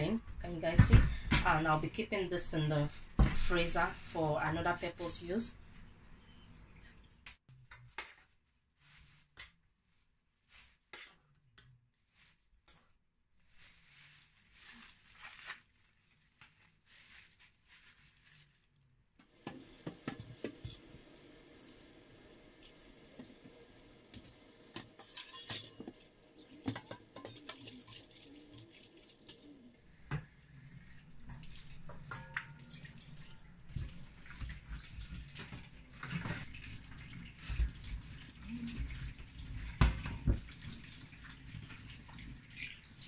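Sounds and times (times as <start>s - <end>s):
tap water running into sink: 19.4s - 30.4s, 31.0s - 43.0s.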